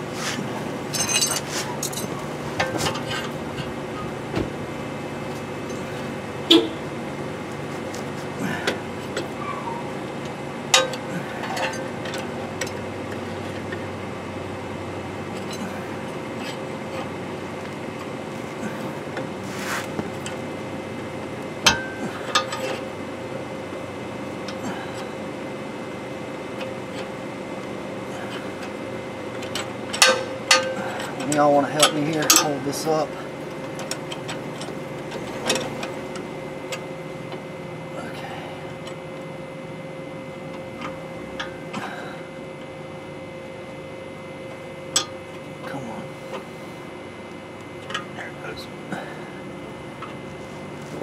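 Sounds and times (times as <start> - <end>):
steady background hum: 0.0 - 51.0
metal clinks and knocks: 0.9 - 4.1.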